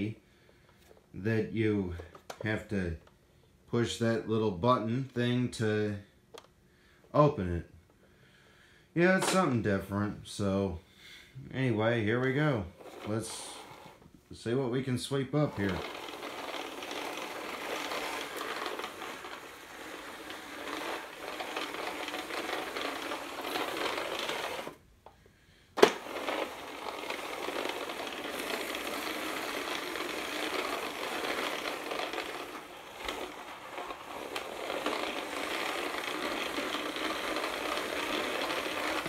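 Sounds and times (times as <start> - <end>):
push sweeper whirring rattle: 0.0 - 3.2, 9.0 - 9.9, 12.2 - 39.0.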